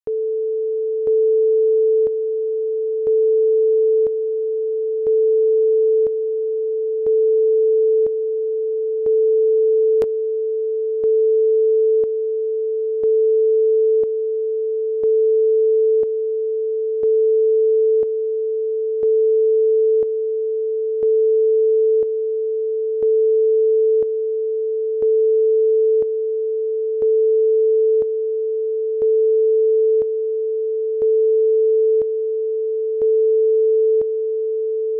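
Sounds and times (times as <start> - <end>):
sine-wave test tone: 0.1 - 34.9.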